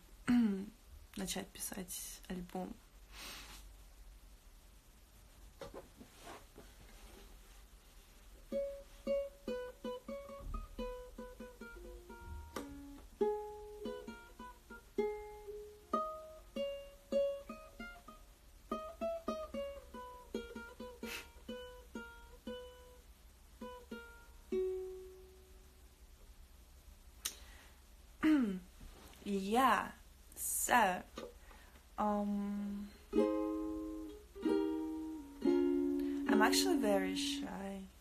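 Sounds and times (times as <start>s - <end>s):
ukulele plucked melody: 8.5s - 25.7s, 33.0s - 37.6s.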